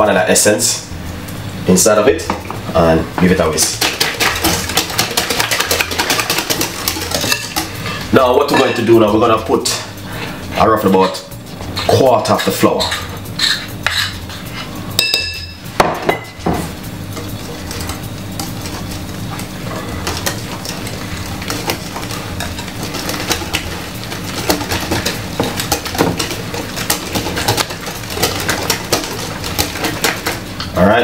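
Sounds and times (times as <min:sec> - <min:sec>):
whisk clinking and scraping bowl: 0:03.4 - 0:30.8.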